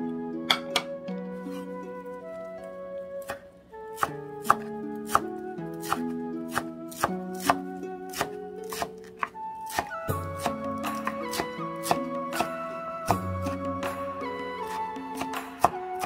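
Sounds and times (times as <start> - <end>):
instrumental background music: 0.0 - 16.0
knife chopping on wooden board: 4.0 - 13.6, 14.7 - 16.0.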